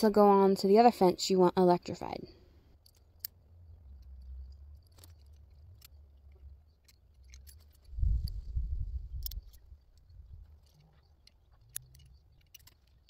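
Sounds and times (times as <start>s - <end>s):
clicks and rustles of fence wire: 2.8s - 13.0s
low rumble: 7.9s - 10.4s.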